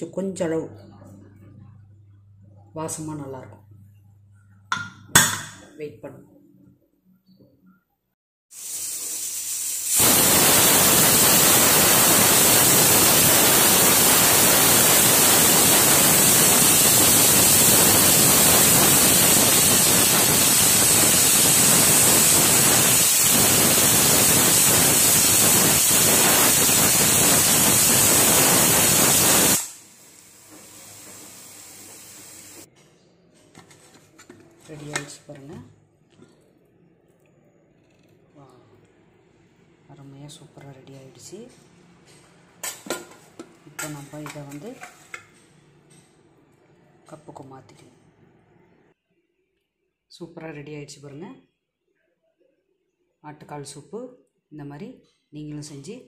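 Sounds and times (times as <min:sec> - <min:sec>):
pressure cooker steam hissing: 0:08.5 - 0:32.7.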